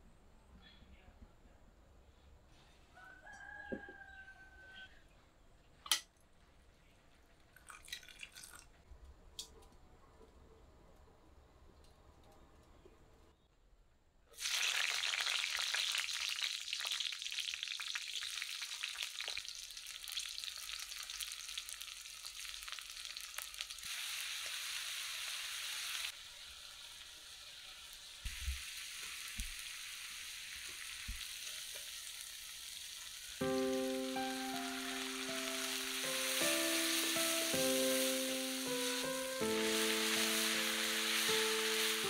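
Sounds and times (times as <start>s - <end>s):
onions sizzling in oil: 14.4s - 42.0s
music: 33.4s - 42.0s.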